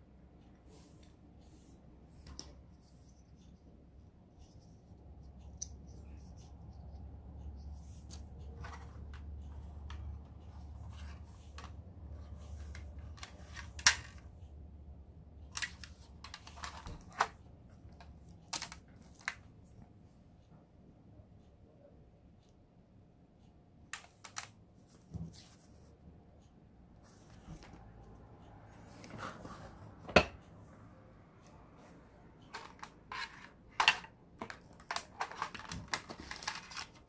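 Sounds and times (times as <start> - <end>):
handling clicks and rustles: 2.1 - 14.4, 31.4 - 37.0.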